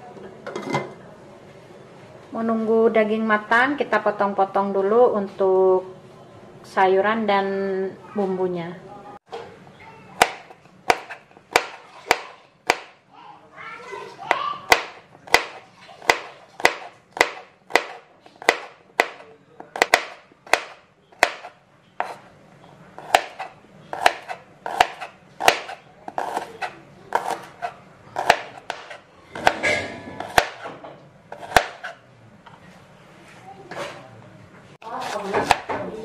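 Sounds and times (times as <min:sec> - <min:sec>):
knife slicing on cutting board: 0:21.2 - 0:22.2, 0:23.0 - 0:29.6.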